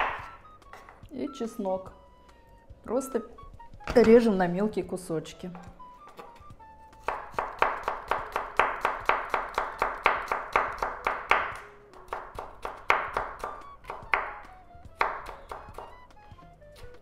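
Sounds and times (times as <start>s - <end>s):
knife chopping on wooden board: 0.0s - 1.0s, 7.0s - 14.4s, 15.0s - 16.0s.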